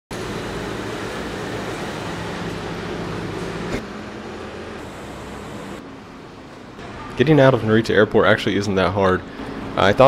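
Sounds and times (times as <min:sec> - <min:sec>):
buses idling: 0:00.1 - 0:07.1
traffic noise: 0:00.1 - 0:07.5.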